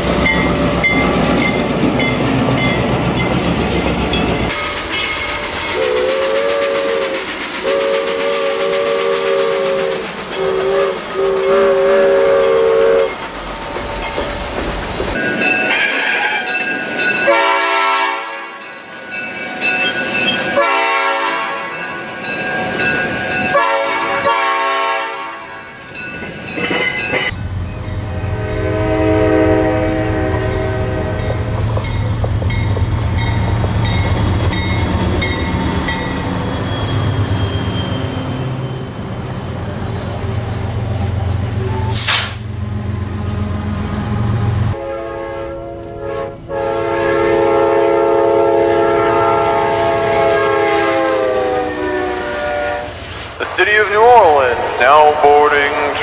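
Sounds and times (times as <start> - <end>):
train rumbling past: 0.0 - 56.0
locomotive horn: 5.7 - 13.2, 15.6 - 16.6, 17.2 - 18.6, 20.5 - 21.8, 23.5 - 25.7, 28.0 - 31.6, 44.3 - 53.0
rich-toned train horn blasts: 5.7 - 13.2, 15.7 - 16.6, 17.2 - 18.7, 20.5 - 21.8, 23.5 - 25.7, 28.0 - 31.5, 44.3 - 53.0.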